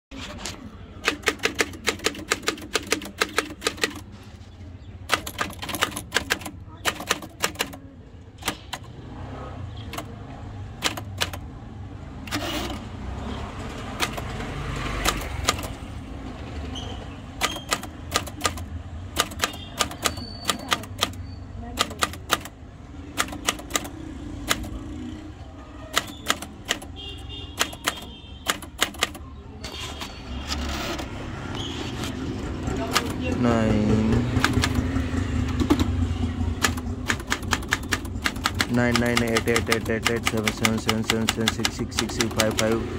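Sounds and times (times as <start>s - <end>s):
typewriter keystroke clacks: 1.0s - 4.1s, 5.1s - 7.8s, 8.4s - 8.9s, 10.8s - 11.5s, 13.9s - 14.4s, 15.0s - 15.8s, 17.4s - 21.2s, 21.8s - 24.8s, 25.9s - 26.9s, 27.6s - 29.3s, 32.8s - 33.3s, 34.3s - 34.9s, 36.6s - 42.8s.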